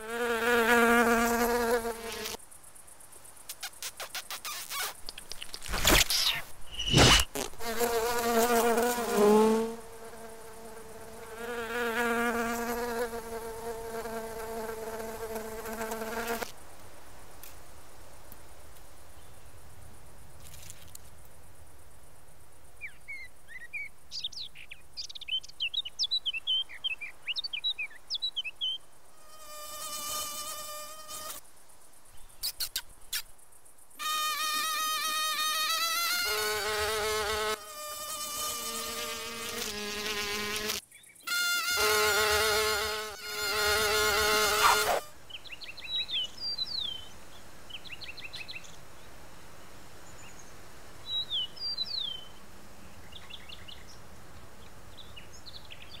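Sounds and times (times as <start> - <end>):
squeaky cartoon chirps: 3.6 - 7.5, 32.4 - 33.3
cartoon wing buzz: 5.7 - 8.6, 39.4 - 45.1.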